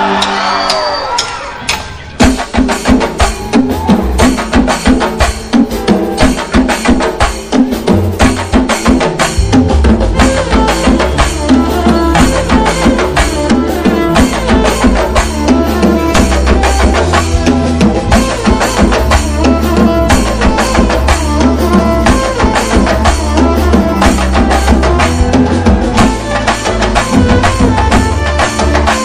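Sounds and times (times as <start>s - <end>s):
music with fast drum beat: 0.0s - 29.0s
heavy bass: 7.8s - 29.0s.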